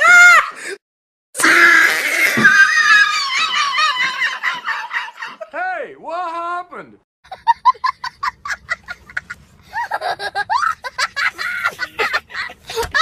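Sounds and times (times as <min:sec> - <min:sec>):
high-pitched laughter: 0:07.3 - 0:13.0.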